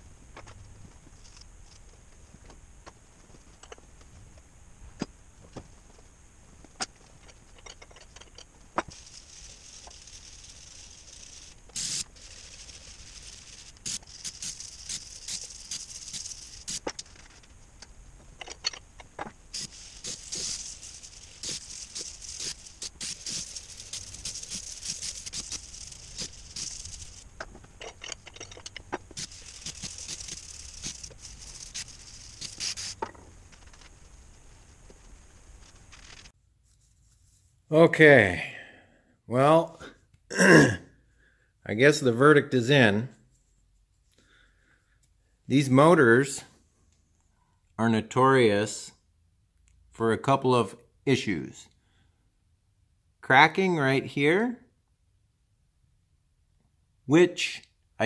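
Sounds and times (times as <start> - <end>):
scratchy hissing noise: 0.0 - 38.5.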